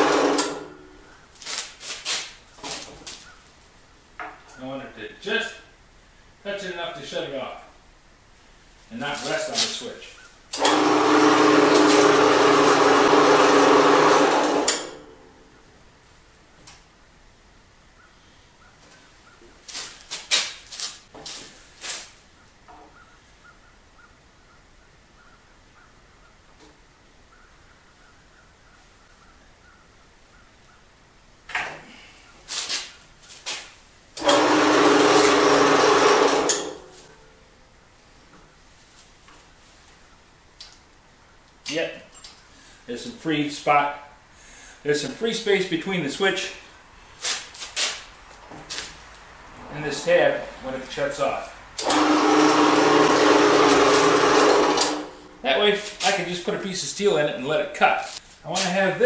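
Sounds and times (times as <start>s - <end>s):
band saw humming: 0.0s - 0.8s, 10.6s - 15.1s, 34.2s - 37.1s, 49.8s - 55.4s.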